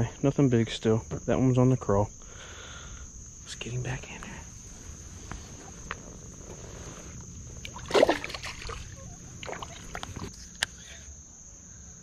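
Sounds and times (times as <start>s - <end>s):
high insect drone: 0.0s - 12.0s
water sloshing: 4.7s - 10.4s
fish splashing into water: 7.6s - 10.3s.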